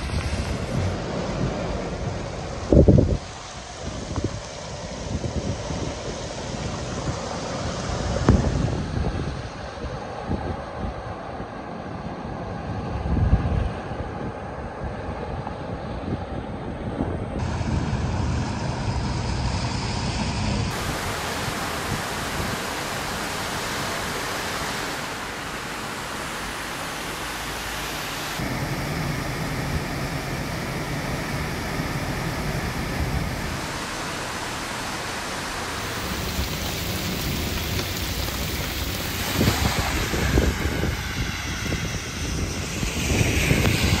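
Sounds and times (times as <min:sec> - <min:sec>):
rushing water: 0:00.0 - 0:04.9, 0:20.7 - 0:44.0
wind buffeting microphone: 0:00.0 - 0:44.0
cars splashing through floodwater: 0:20.7 - 0:44.0.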